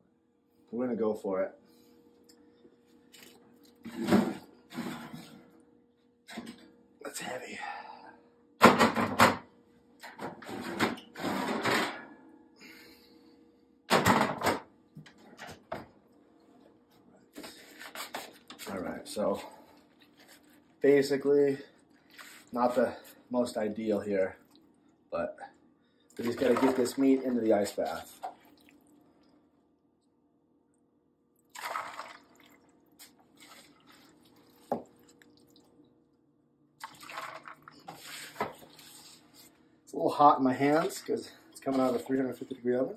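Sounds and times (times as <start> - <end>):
meat splashing into water: 31.5 - 35.7.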